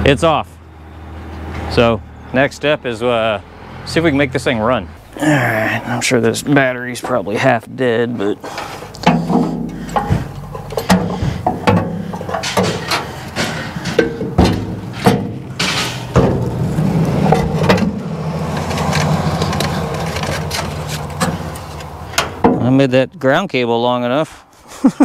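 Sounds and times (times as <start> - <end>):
metal clicks and clanks: 8.4 - 22.7.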